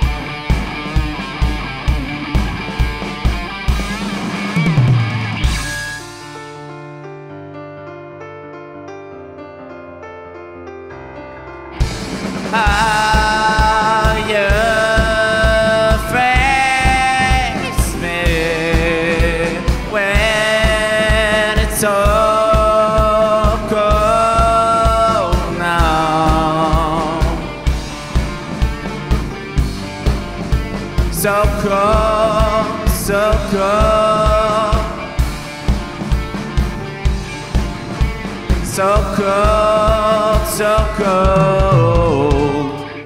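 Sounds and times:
live rock band playing: 0.0s - 7.4s, 10.9s - 43.0s
person singing: 12.3s - 27.8s, 30.9s - 35.4s, 38.2s - 43.0s.

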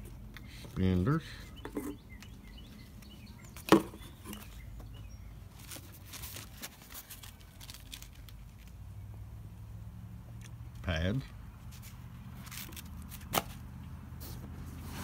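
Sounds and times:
cardboard and harness rustling: 2.8s - 8.8s, 11.6s - 15.0s.

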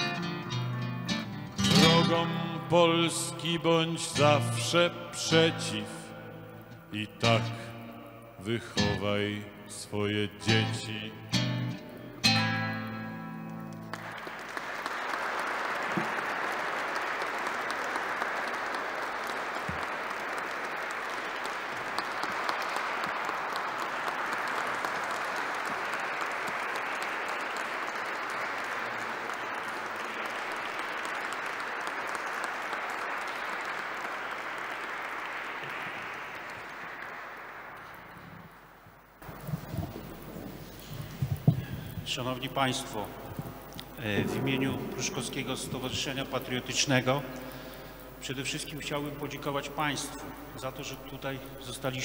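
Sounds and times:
audience applauding: 0.0s - 8.0s, 11.3s - 52.0s
acoustic guitar chords: 0.0s - 14.0s.

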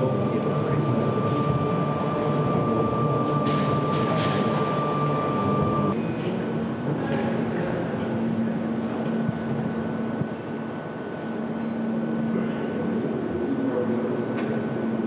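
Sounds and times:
high whine: 0.0s - 6.0s
machinery hum: 0.0s - 15.0s.

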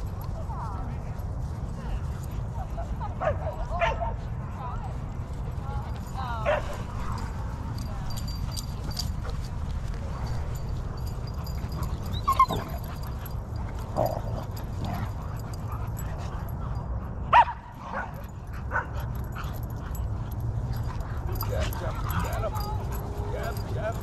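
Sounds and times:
dogs barking and yipping: 5.9s - 24.0s.

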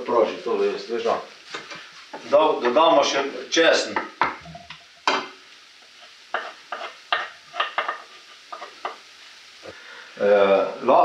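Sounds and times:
garlic sizzling: 0.0s - 11.0s
spoon scraping a frying pan: 1.4s - 3.2s, 3.9s - 9.1s.

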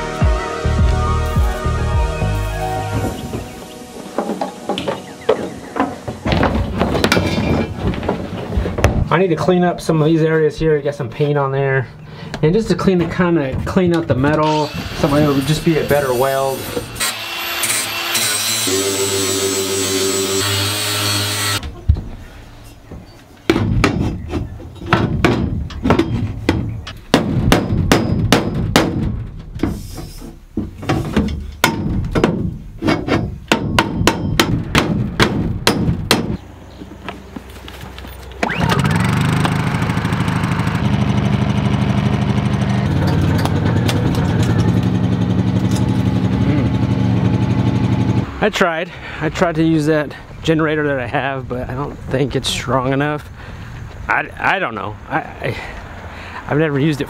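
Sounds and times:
angle grinder: 14.4s - 21.6s, 38.5s - 47.7s
hammer knocking on metal: 24.9s - 29.2s, 30.6s - 36.4s
generator engine running: 38.4s - 48.3s.

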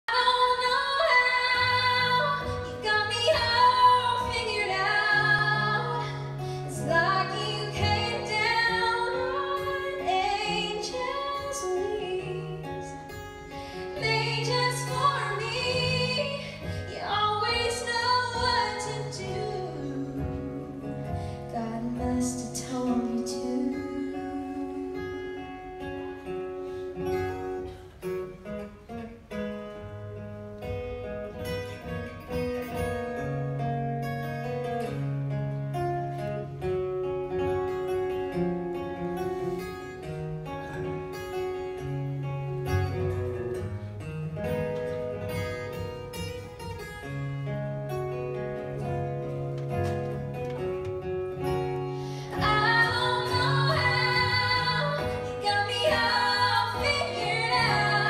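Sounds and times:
woman singing: 0.1s - 26.1s, 51.8s - 58.0s.

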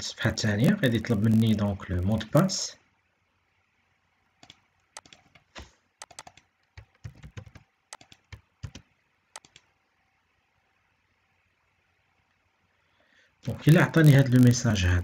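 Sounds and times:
keyboard and mouse clicking: 4.4s - 9.7s.

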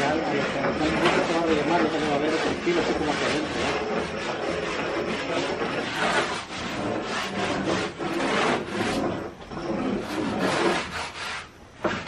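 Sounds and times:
hand tool rasping and scraping: 0.0s - 12.0s.

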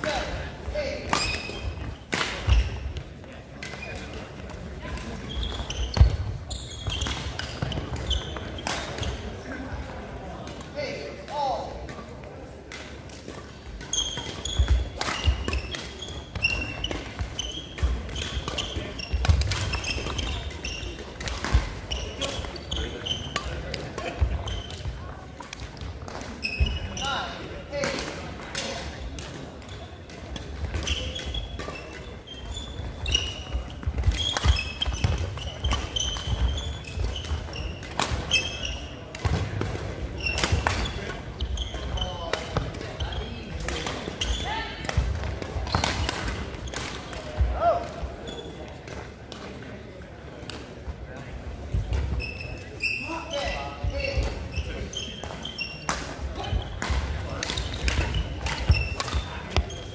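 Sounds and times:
racket hitting shuttlecock: 1.1s - 2.8s, 12.7s - 24.8s, 55.8s - 59.8s
shoes squeaking: 3.6s - 9.4s, 13.6s - 27.9s, 29.6s - 44.8s, 45.5s - 48.7s, 51.6s - 59.9s.

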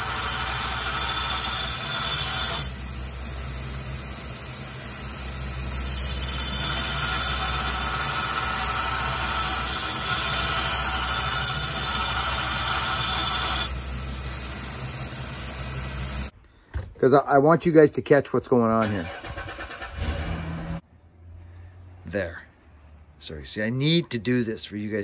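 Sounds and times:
belt grinder motor running: 0.0s - 2.8s, 5.6s - 13.8s
steel grinding on abrasive belt: 0.0s - 2.8s, 5.4s - 13.8s.

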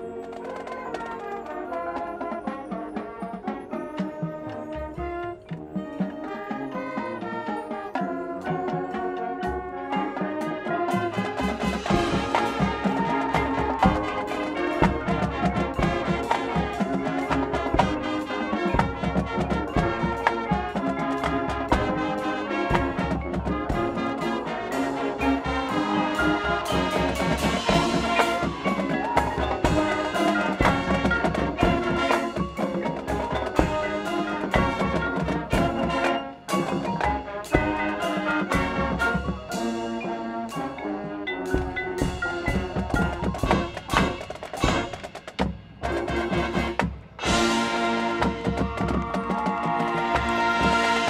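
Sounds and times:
marching band playing: 0.0s - 51.0s
drum hits: 11.5s - 24.4s, 41.5s - 51.0s.

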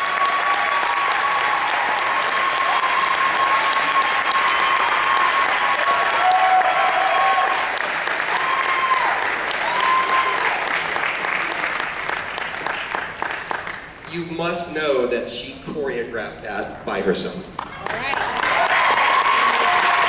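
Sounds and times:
people cheering: 0.0s - 13.6s, 17.8s - 20.0s
audience applauding: 0.0s - 14.2s, 17.6s - 20.0s.

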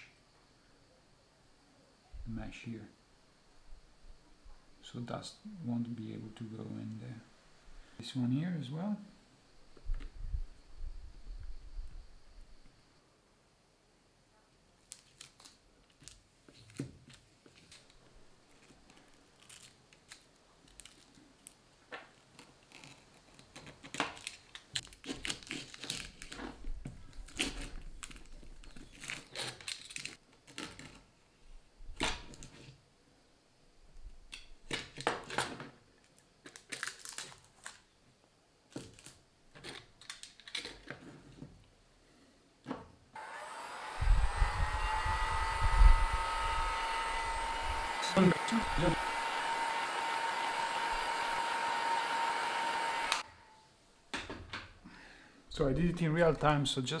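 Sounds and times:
adhesive tape ripping and crinkling: 14.9s - 31.1s, 36.1s - 37.9s, 38.7s - 40.9s
heat gun whining hum: 43.2s - 53.6s.

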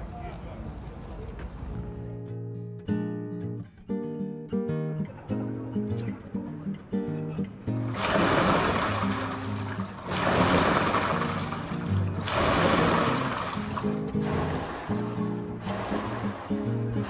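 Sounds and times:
soft acoustic guitar music: 1.6s - 17.0s
rowing machine flywheel churning water: 7.8s - 17.0s.

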